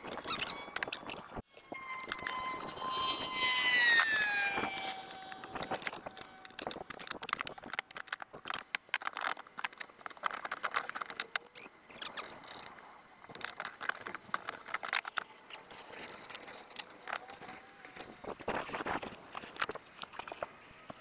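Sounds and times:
rapid clatter of assembly: 0:04.4 - 0:20.4.

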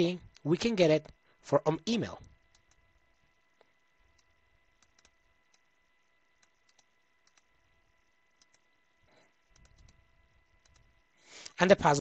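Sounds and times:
computer mouse clicks: 0:02.2 - 0:02.9, 0:03.5 - 0:05.7, 0:06.3 - 0:07.6, 0:08.3 - 0:08.8, 0:09.4 - 0:10.0, 0:10.6 - 0:11.6.

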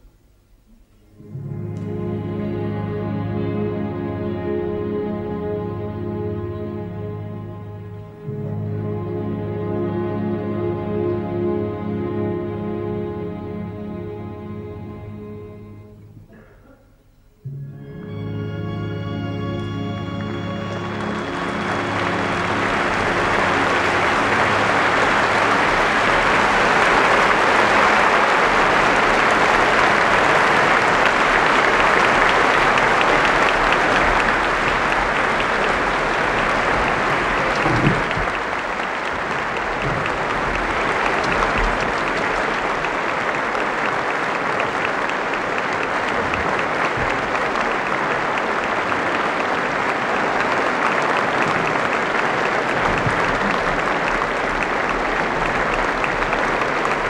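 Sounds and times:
music: 0:00.0 - 0:57.0
audience applauding: 0:18.6 - 0:57.0.

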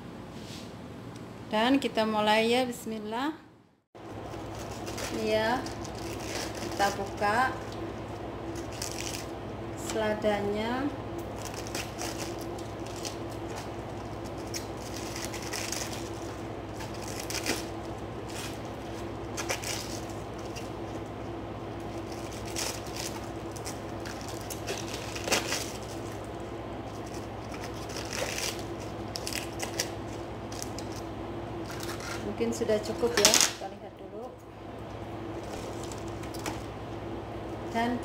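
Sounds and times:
steady hum: 0:00.0 - 0:38.0
lettuce leaves tearing: 0:04.3 - 0:09.3, 0:11.2 - 0:21.1, 0:21.8 - 0:32.3.

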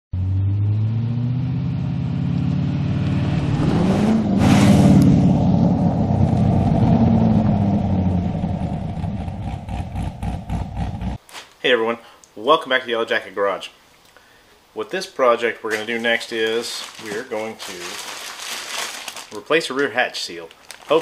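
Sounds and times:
sports car driving past: 0:00.2 - 0:11.2.

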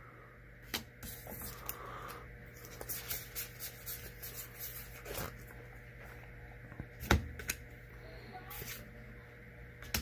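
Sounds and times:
cards rustling and clicking: 0:02.6 - 0:05.6.

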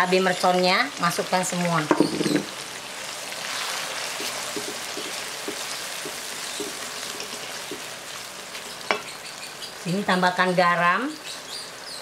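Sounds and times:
paste sizzling in hot oil: 0:00.0 - 0:10.4
spatula scraping wok: 0:03.3 - 0:09.2.

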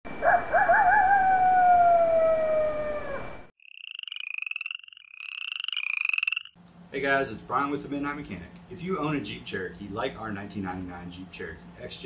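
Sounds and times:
wolf howling: 0:00.2 - 0:03.5.

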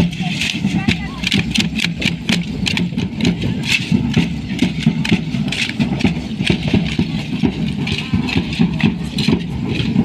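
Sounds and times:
rhythmic rattling: 0:00.0 - 0:10.0.

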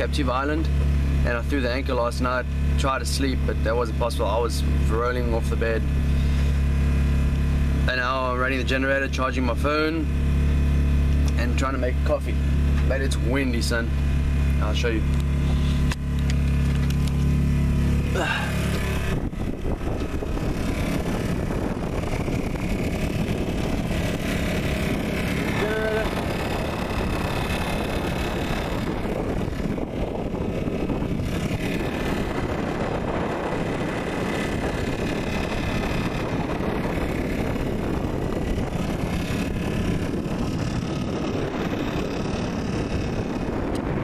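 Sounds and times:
portable generator running: 0:00.0 - 0:44.0
wind blowing on microphone: 0:11.2 - 0:44.0.

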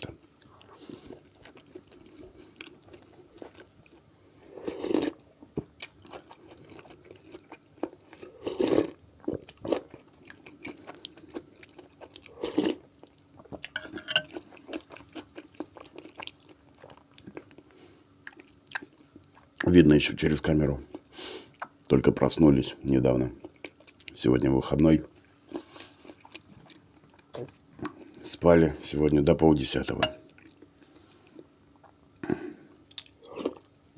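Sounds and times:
chewing with wet clicks: 0:00.1 - 0:04.0, 0:04.9 - 0:19.7, 0:20.9 - 0:22.0, 0:23.4 - 0:24.2, 0:25.5 - 0:28.2, 0:30.3 - 0:32.0, 0:32.9 - 0:33.7.

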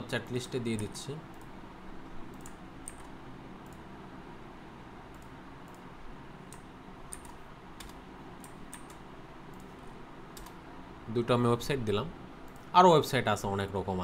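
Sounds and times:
low background hum: 0:00.0 - 0:14.0
keyboard and mouse clicks: 0:02.3 - 0:03.8, 0:06.5 - 0:10.6.

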